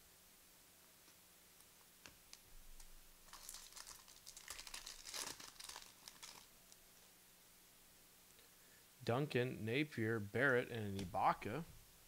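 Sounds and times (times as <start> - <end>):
foil wrapper tearing and crinkling: 2.8 - 6.5.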